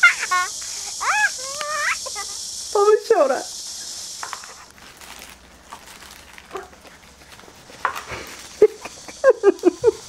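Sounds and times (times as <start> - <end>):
toddler vocalizing: 0.0 - 2.4.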